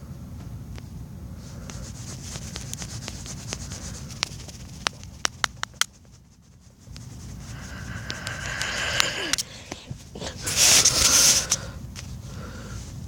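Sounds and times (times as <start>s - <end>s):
low steady hum: 0.0s - 13.0s
fingertip rubbing on touchscreen: 1.4s - 11.7s.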